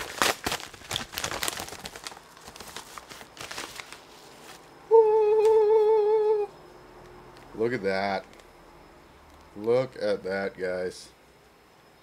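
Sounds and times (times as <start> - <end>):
padded envelope rustling: 0.0 - 4.7
man's drawn-out ooh: 4.9 - 6.6.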